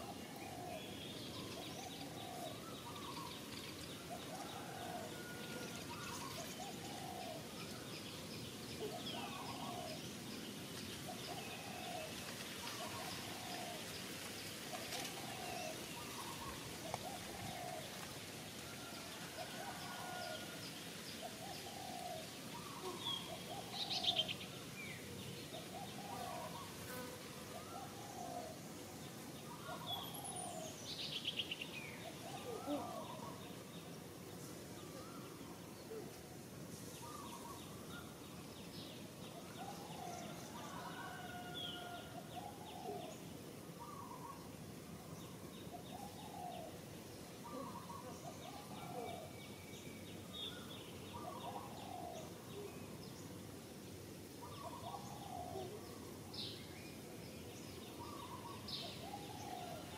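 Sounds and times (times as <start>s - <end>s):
outdoor hiss: 9.9s - 39.6s, 52.0s - 55.0s.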